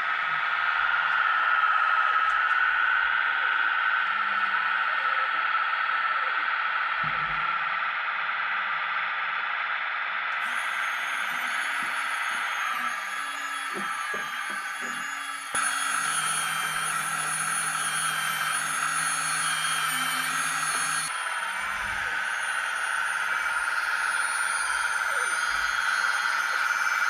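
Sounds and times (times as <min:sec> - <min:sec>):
electric pump and motor whine: 0:00.0 - 0:27.0
wavering high-pitched tones: 0:10.4 - 0:27.0.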